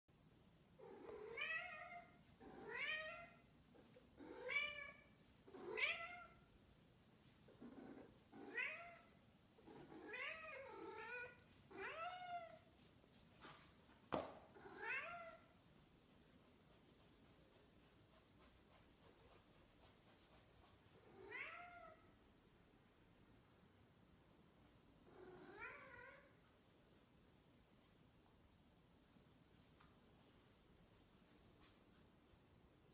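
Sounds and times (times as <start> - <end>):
cat meowing: 8.4 - 9.1, 10.0 - 12.6, 21.2 - 22.0.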